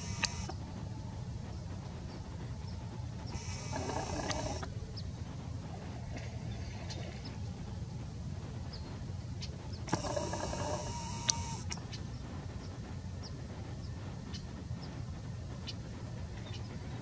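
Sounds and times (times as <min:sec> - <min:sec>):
camera zoom motor whirring: 0:00.0 - 0:00.6, 0:03.3 - 0:04.7, 0:09.9 - 0:11.8
low outdoor rumble: 0:00.0 - 0:17.0.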